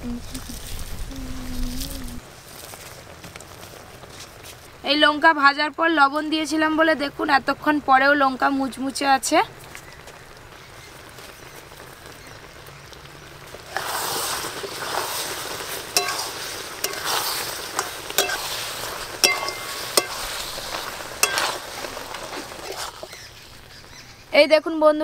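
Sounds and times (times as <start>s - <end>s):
syrup sizzling in metal pan: 8.4s - 24.4s
metal spatula clinking pan: 16.0s - 21.6s.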